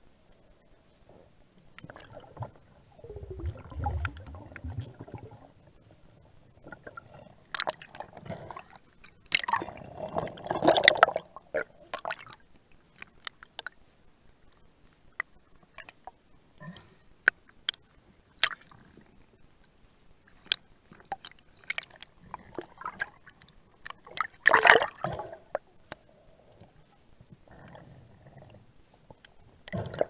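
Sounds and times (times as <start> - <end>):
water gurgling and sloshing: 1.1 - 13.2, 20.4 - 30.0.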